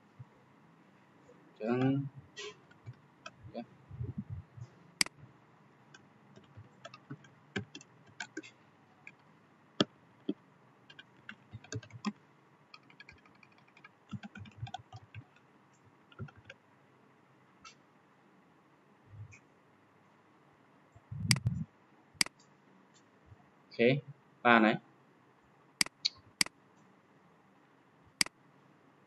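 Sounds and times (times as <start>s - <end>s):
soft low thumps: 3.3s - 5.2s, 21.0s - 21.6s
keyboard key clicks: 10.9s - 12.1s, 12.8s - 15.3s, 16.1s - 16.5s.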